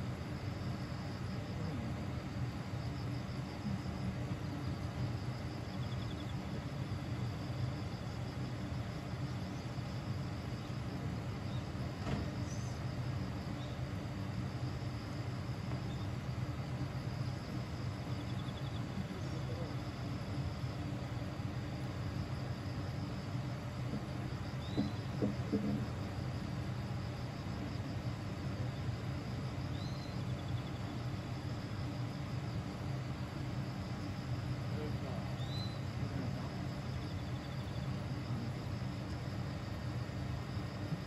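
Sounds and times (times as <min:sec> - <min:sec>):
insects chirping: 0:00.0 - 0:41.0.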